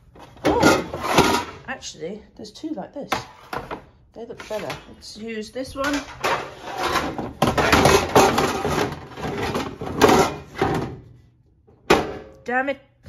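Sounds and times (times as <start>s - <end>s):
metal baking sheets scraping: 0.2s - 1.7s, 3.1s - 10.9s.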